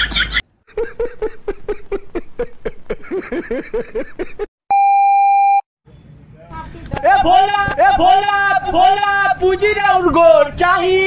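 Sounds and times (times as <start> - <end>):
man laughing hard: 0.0 - 4.5
loud electronic beep: 4.7 - 5.6.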